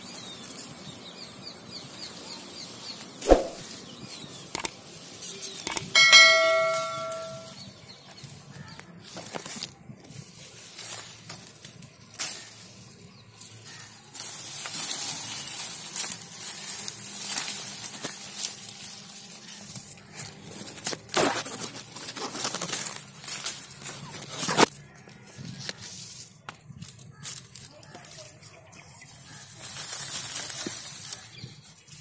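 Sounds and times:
leaves and branches rustling: 2.1 - 7.6, 8.2 - 32.0
sharp clicks: 4.5 - 4.8, 5.6 - 5.9.

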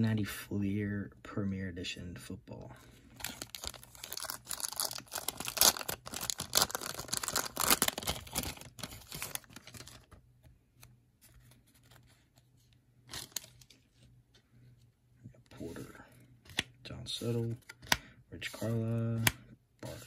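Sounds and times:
plastic wrapper tearing and crinkling: 3.2 - 10.2, 13.1 - 13.8
cards being handled: 15.6 - 20.0.

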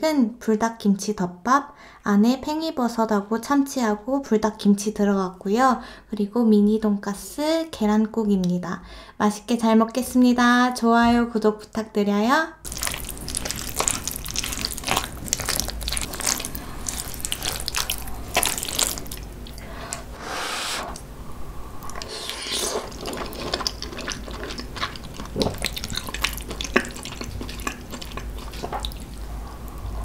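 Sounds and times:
wet chewing smacks: 12.7 - 19.6, 21.8 - 29.8.

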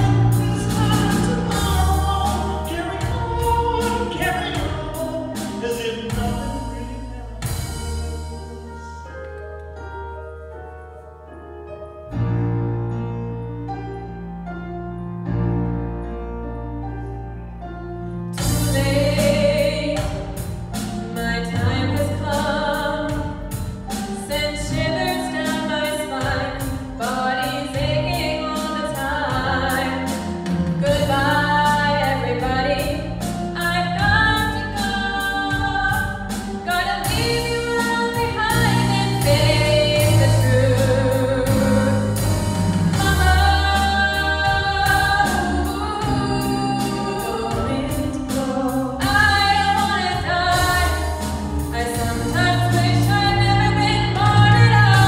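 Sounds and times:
choir singing gospel song: 0.0 - 9.0, 33.8 - 55.0
low bass line: 0.0 - 9.7, 27.8 - 55.0
band accompaniment: 0.0 - 10.1, 17.6 - 55.0.

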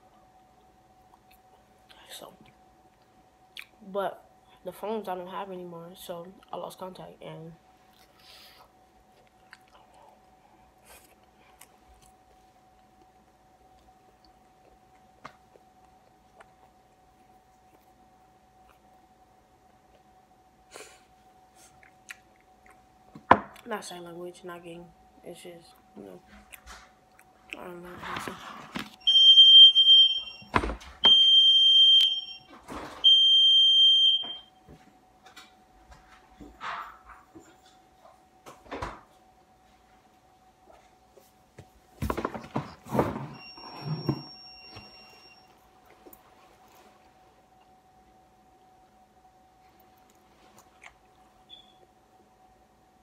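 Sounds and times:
faint hum: 0.0 - 53.0
chewing mouth sounds: 9.2 - 18.0, 21.6 - 22.9, 50.0 - 51.4
high-pitched electronic alarm beeps: 29.0 - 32.5, 33.1 - 34.5.

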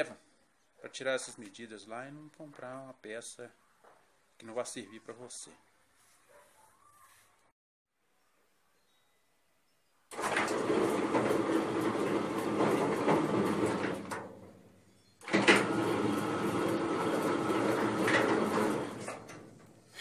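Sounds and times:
gate motor running: 10.1 - 19.9
gate rattling along rack: 10.1 - 20.0.

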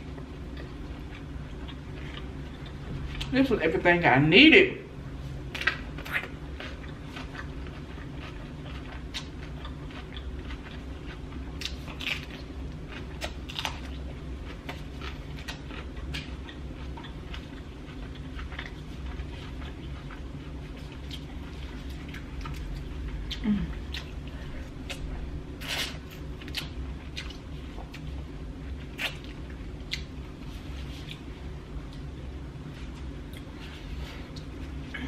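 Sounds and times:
person biting and chewing: 5.5 - 28.1, 28.8 - 30.2.

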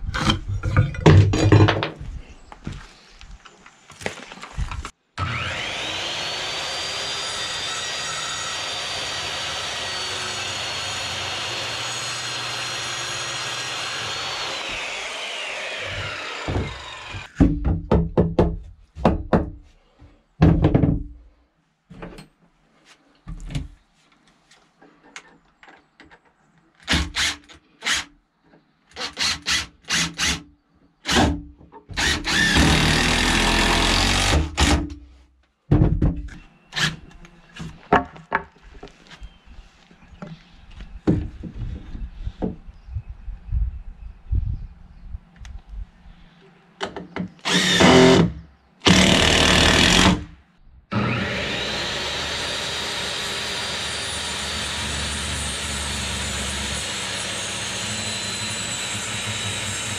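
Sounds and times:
circular saw whining: 5.2 - 17.4, 50.9 - 59.9
cordless drill driving screws: 29.0 - 30.4, 32.0 - 34.8, 47.4 - 50.2
knocks on wood: 35.7 - 36.2.

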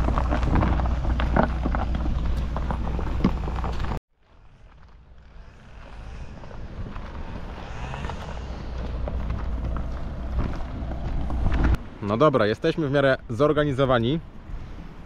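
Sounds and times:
van engine rumbling: 0.0 - 12.0
wind on microphone: 5.3 - 12.0.

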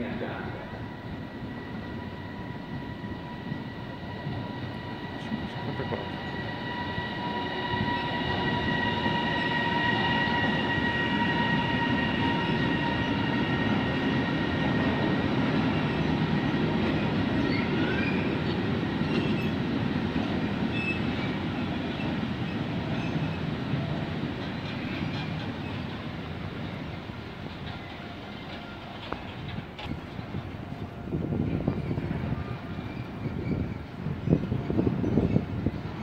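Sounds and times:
freight train rumbling past: 0.0 - 36.0
wheel squeals: 20.7 - 23.5, 31.7 - 35.8.

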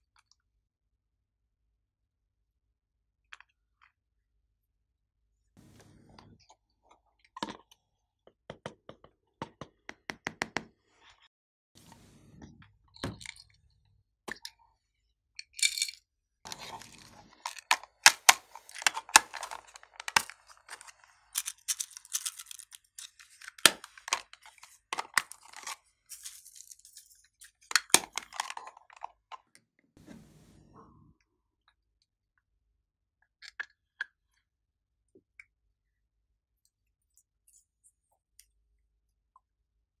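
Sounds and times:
cosmetic cases clicking and crackling: 16.5 - 26.4.

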